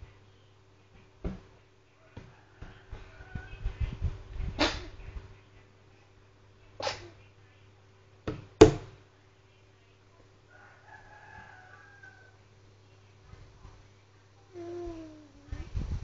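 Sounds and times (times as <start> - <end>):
rooster crowing faintly: 1.9 - 4.8, 10.4 - 12.5.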